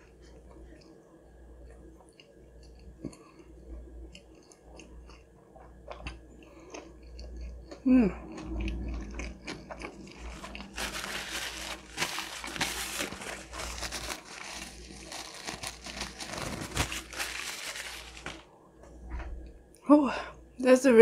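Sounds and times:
chewing with mouth clicks: 1.6 - 11.1
paper napkin crinkling: 10.1 - 18.5.

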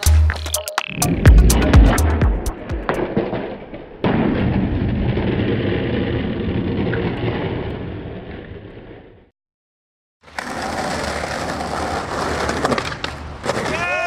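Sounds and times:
skateboard wheels rolling on concrete: 4.9 - 9.3, 10.2 - 14.0.

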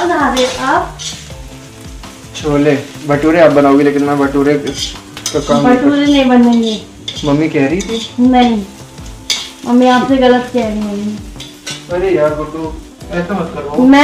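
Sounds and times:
food sizzling in a pan: 0.0 - 14.0
spoon stirring: 0.4 - 1.4, 4.6 - 9.6.

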